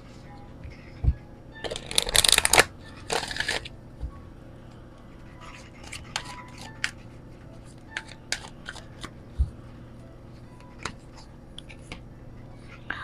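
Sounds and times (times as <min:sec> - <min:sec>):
cards being shuffled: 0:01.6 - 0:03.7, 0:08.0 - 0:09.2.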